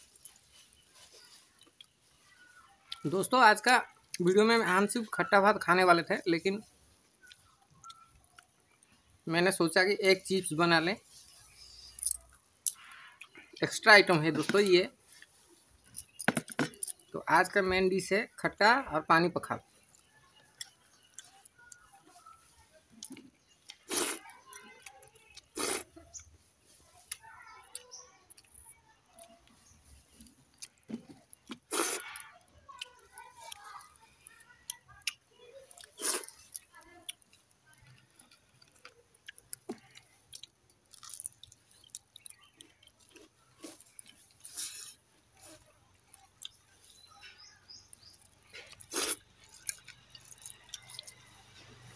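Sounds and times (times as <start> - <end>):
chewing and clicks: 0.1 - 2.0, 7.0 - 9.1, 11.9 - 13.6, 19.7 - 26.4, 27.0 - 51.9.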